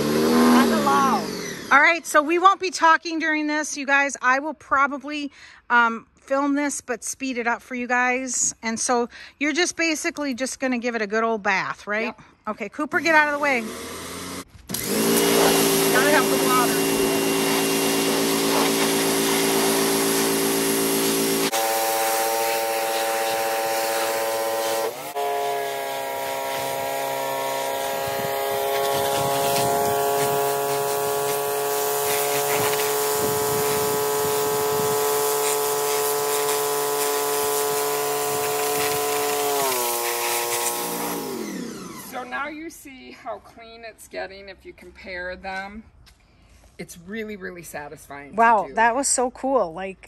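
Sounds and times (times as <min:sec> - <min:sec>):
pressure washer motor whine: 0:00.0 - 0:01.7, 0:13.4 - 0:42.4
water spray hitting wooden slats: 0:14.6 - 0:41.3.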